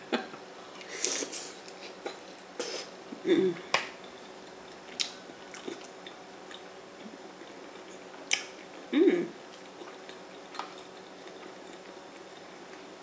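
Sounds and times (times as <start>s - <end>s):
person humming mm: 2.6s - 3.7s, 8.9s - 9.4s.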